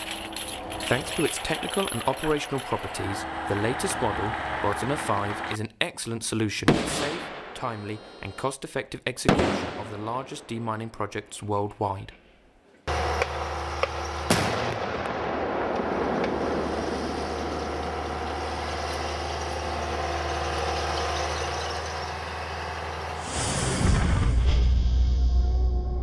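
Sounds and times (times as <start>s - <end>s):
engine rumble: 0.0s - 5.6s, 12.9s - 24.2s
sharp blast: 9.3s - 10.4s, 14.3s - 17.1s
music: 23.8s - 26.0s.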